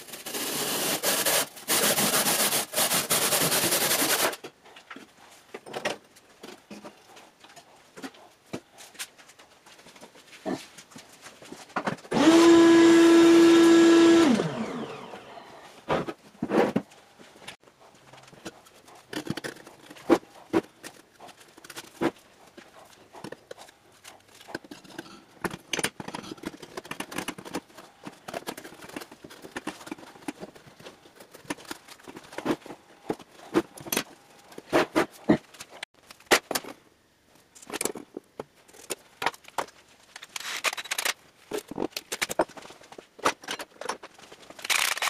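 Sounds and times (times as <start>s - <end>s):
power tool motor winding down: 12.1s - 15.4s.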